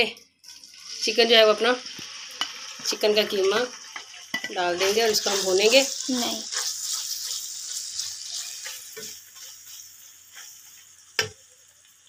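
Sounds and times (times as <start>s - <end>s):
meat sizzling in a pan: 0.4s - 12.0s
spatula scraping a pan: 2.1s - 11.3s.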